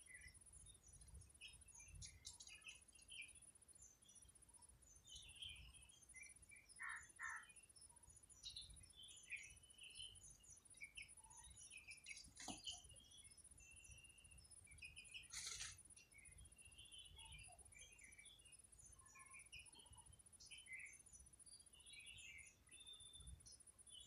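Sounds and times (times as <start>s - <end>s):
small birds chirping: 0.0s - 24.0s
brief rustle: 15.2s - 15.8s.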